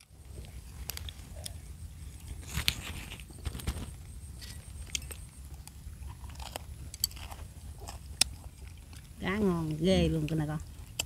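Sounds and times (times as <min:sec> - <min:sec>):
small crunches and clicks: 0:00.4 - 0:01.6, 0:02.2 - 0:09.2
person chewing food: 0:04.2 - 0:09.8, 0:10.6 - 0:11.0.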